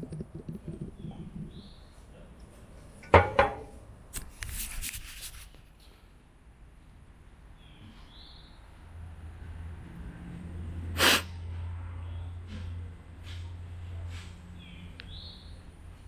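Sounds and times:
sharp thump: 3.1 - 3.7.

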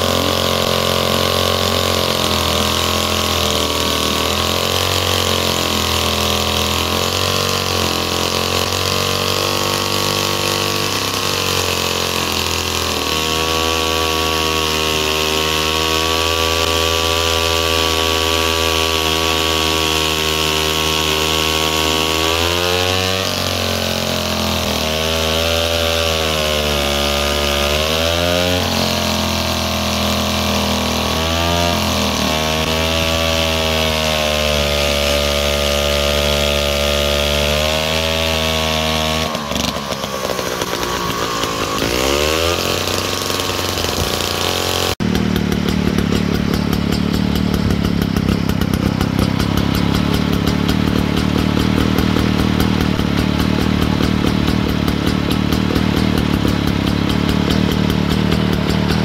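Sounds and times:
chainsaw cutting log: 0.0 - 59.0.

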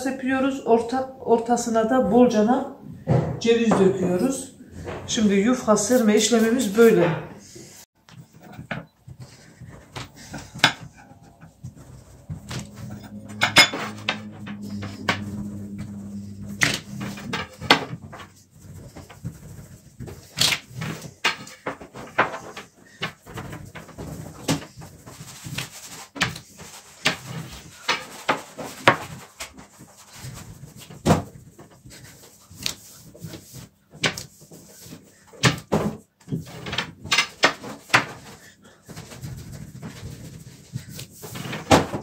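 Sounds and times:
low rolling rumble: 10.1 - 18.6.

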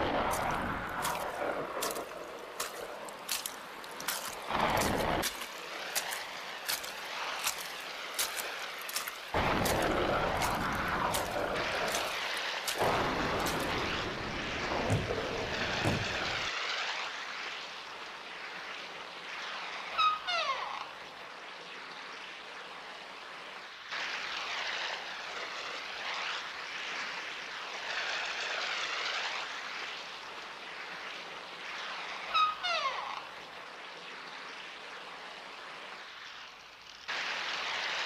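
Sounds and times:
sharp crackles: 0.0 - 17.3
wind gusts: 0.0 - 20.1
rain: 0.0 - 38.0
deep rumbles: 12.8 - 16.5.

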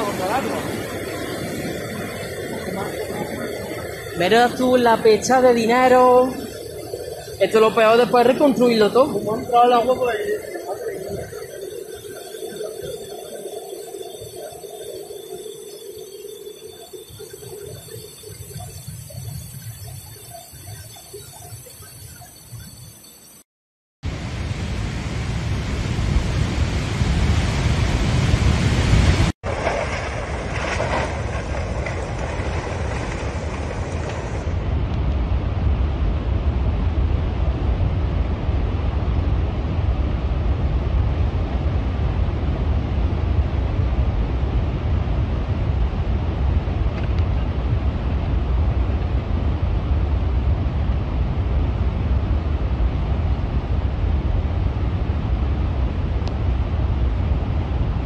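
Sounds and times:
floodwater rushing: 0.0 - 15.2, 26.6 - 34.6.

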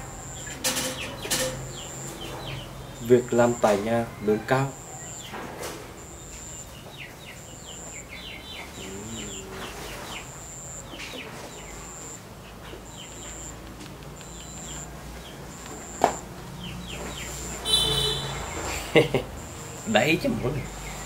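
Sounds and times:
birds chirping: 0.0 - 21.0
pulsing thin high tone: 8.6 - 10.9, 11.8 - 12.2.

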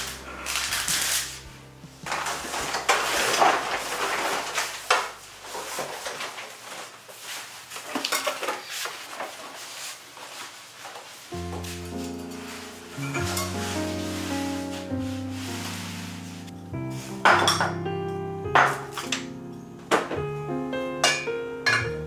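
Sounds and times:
soft background music: 0.0 - 6.1, 11.2 - 22.0.

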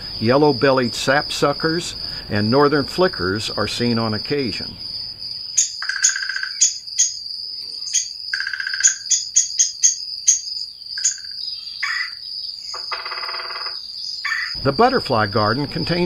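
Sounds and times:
high insect drone: 0.0 - 16.0
harsh rolling bird call: 11.0 - 16.0.

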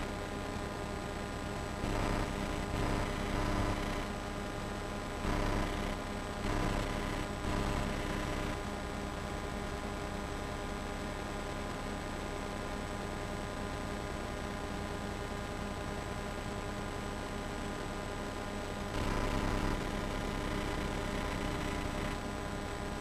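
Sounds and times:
electrical hum: 0.0 - 10.0, 17.5 - 23.0.

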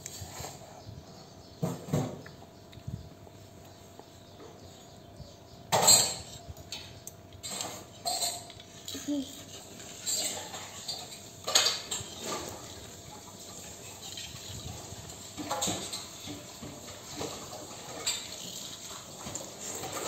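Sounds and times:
dishware clinking and scraping: 5.7 - 20.0.

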